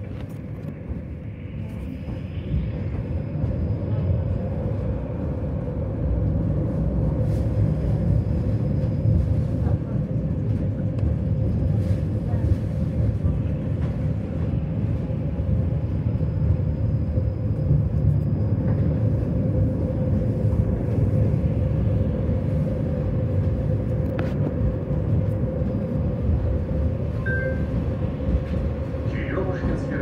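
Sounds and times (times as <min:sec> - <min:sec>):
constant hum: 0:00.0 - 0:30.0
tram rumbling on rails: 0:00.0 - 0:30.0
brief high tone: 0:27.2 - 0:27.7.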